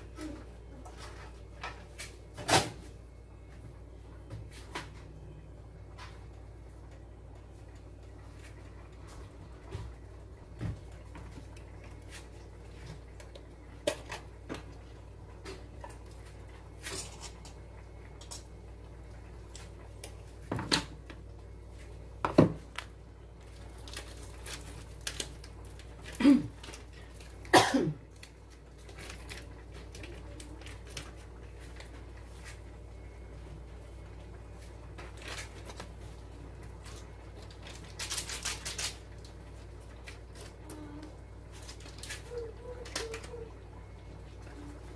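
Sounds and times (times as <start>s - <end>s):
low steady hum: 0.0s - 44.9s
foil packets rustling: 22.6s - 32.7s, 34.5s - 43.5s.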